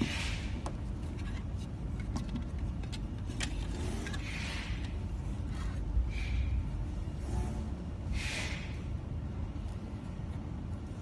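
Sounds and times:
low background rumble: 0.0 - 11.0
short hisses: 8.1 - 8.8.

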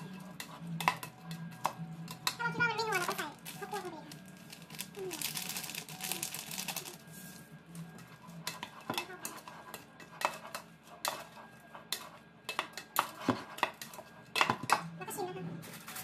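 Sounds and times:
plastic packet rustling: 2.9 - 7.4
spoon scraping steel bowl: 7.0 - 14.8.

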